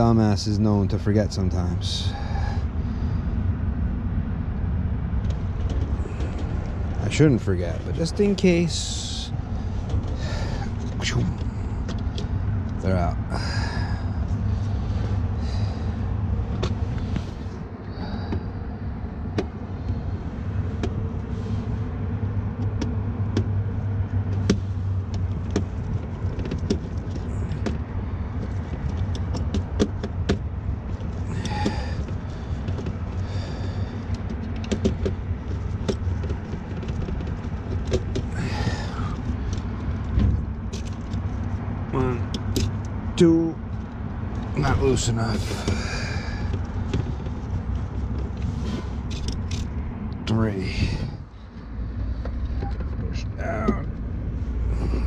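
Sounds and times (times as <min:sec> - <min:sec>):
low machinery rumble: 0:00.0 - 0:55.0
small clicks and rustles: 0:22.6 - 0:43.0.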